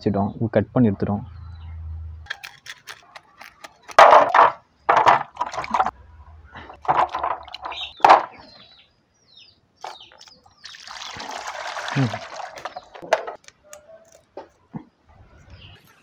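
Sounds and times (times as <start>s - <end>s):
water splashing in a steel basin: 5.2s - 6.0s, 10.6s - 13.0s.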